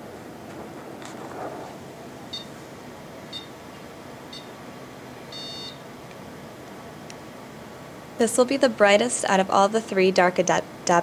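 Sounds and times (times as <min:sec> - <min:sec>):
high warning beeps: 0:02.3 - 0:02.6, 0:03.3 - 0:03.6, 0:04.3 - 0:04.6, 0:05.3 - 0:05.8.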